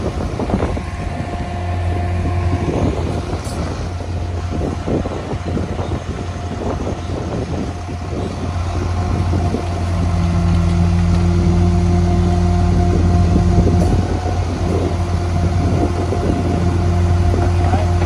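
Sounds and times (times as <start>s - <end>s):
garbage truck engine: 0.0s - 18.0s
hydraulic whine: 0.0s - 18.0s.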